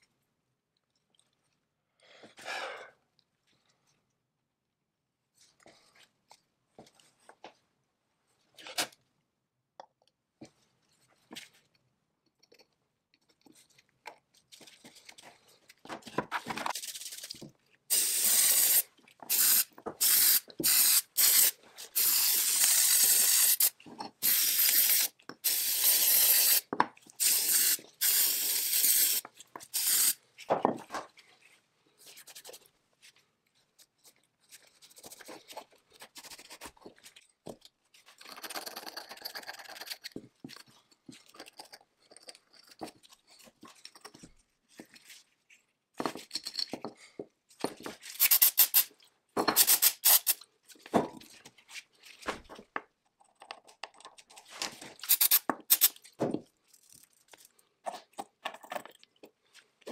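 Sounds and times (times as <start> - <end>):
pressurized spray hissing: 17.9 - 26.6, 27.2 - 29.2, 48.2 - 48.9, 49.6 - 50.4, 55.1 - 55.9.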